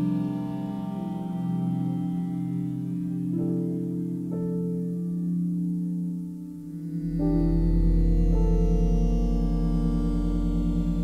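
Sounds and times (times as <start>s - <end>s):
deep bass drone: 0.0s - 4.3s, 6.6s - 11.0s
sustained synthesizer chords: 0.0s - 11.0s.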